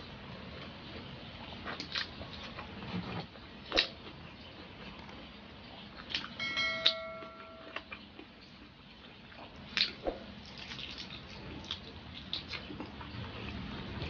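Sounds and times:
wet chewing and lip smacks: 1.4 - 2.8, 4.8 - 6.4, 7.7 - 14.0
click and bell-like chime: 6.4 - 7.9.

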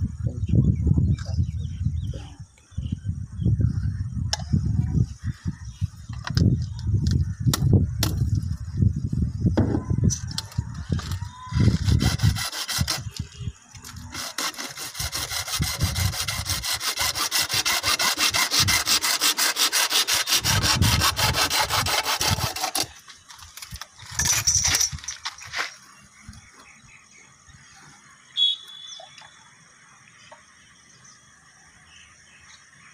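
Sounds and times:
hacksaw cutting plastic pipe: 11.6 - 13.2, 13.9 - 23.0.

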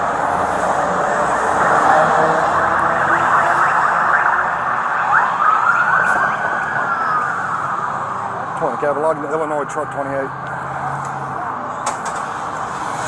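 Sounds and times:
steady traffic noise: 0.0 - 13.0
siren wailing: 0.8 - 8.5.

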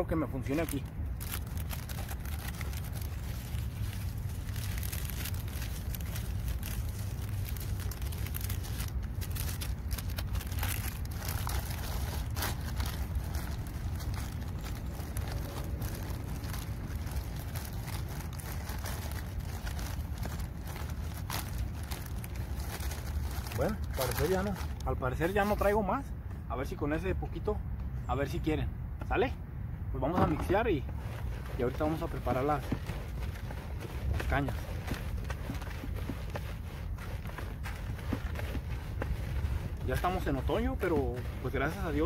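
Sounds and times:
seeds pouring into bucket: 0.4 - 25.0, 31.0 - 42.0
plastic packet crinkling: 0.4 - 25.4
low rumble: 0.8 - 23.6.

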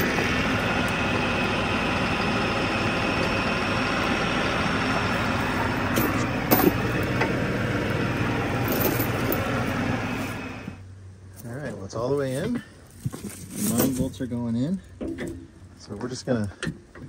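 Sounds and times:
tractor diesel engine running: 0.0 - 11.3.

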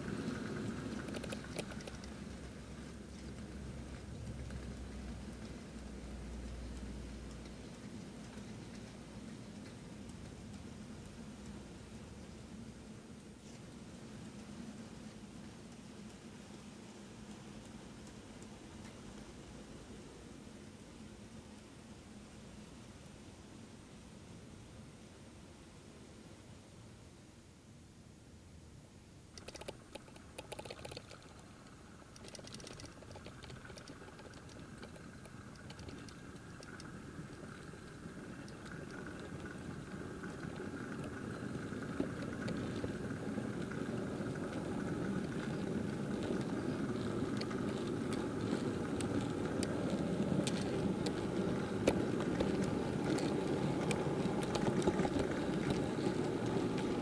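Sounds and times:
clicks over rail joints: 0.0 - 11.7, 29.4 - 57.0
model train rattling rumble: 0.0 - 22.5, 29.4 - 57.0.

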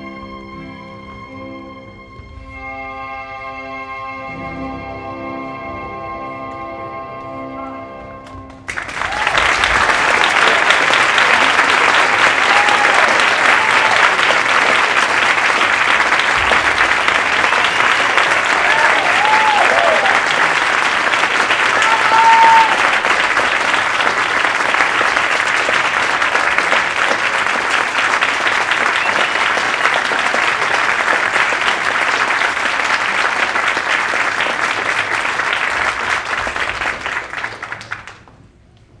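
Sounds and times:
audience applauding: 8.5 - 38.4
audience cheering: 8.7 - 38.1.

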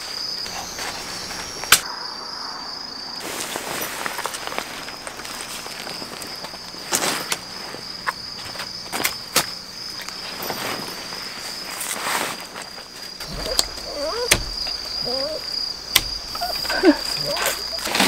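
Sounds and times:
crickets trilling: 0.0 - 18.0
tent buckles and pole clicks: 8.6 - 18.0
small dog whining: 13.3 - 15.5, 16.3 - 18.0.

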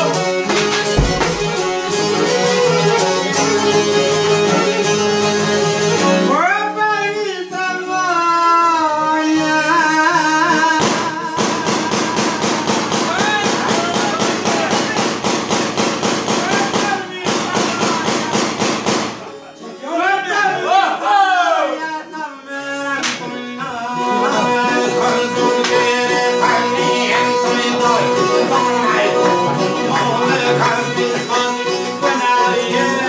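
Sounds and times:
fast rhythmic strumming: 0.0 - 6.0, 24.3 - 33.0
folk band playing: 0.0 - 33.0.

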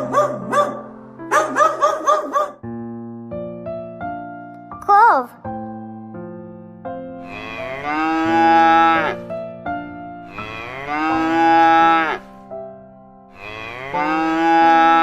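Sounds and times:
soft background music: 0.0 - 15.0
cows mooing: 7.2 - 9.3, 10.3 - 12.3, 13.4 - 15.0.

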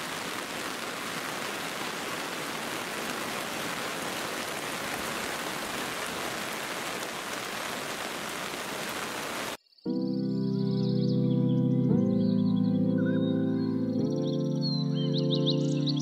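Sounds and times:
steady rain falling: 0.0 - 9.6.

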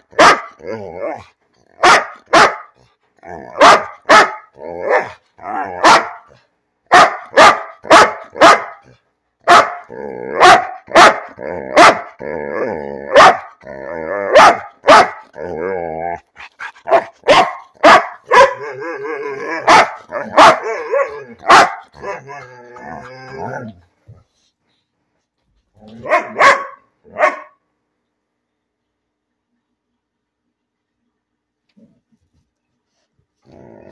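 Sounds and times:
large dog barking: 0.0 - 15.6, 16.3 - 23.9, 25.8 - 27.6
dog whining with wavering pitch: 22.0 - 23.8.

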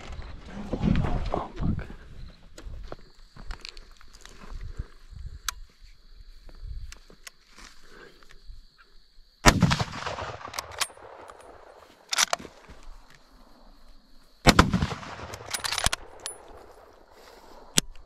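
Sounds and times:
rifle shots echoing: 9.4 - 11.7, 14.4 - 16.5.

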